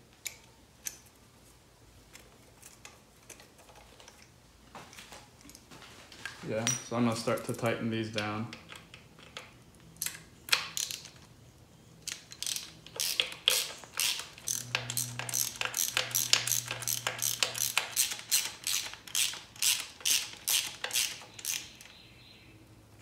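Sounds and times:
ratchet wrench clicking: 12.1 - 21.9.

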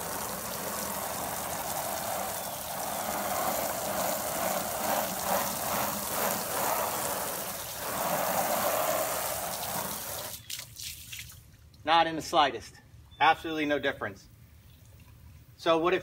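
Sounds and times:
hose spraying water on siding: 0.0 - 11.5.

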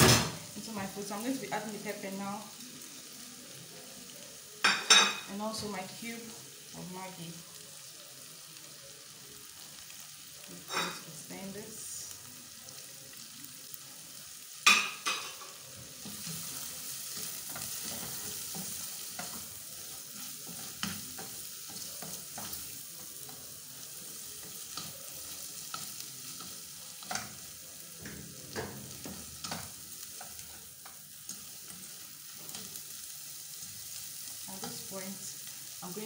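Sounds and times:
vegetables sizzling in oil: 0.0 - 36.0
spoon stirring and scraping: 14.7 - 27.4, 28.8 - 32.8.

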